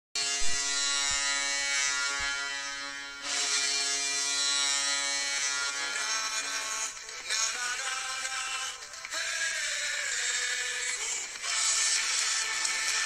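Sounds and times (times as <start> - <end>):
low thumps: 0.4 - 1.3.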